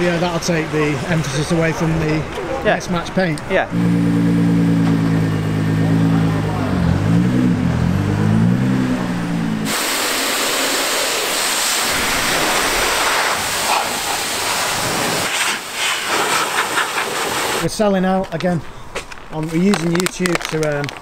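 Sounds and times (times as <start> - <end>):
car engine running: 3.7 - 13.6
car wash equipment hissing: 8.8 - 17.7.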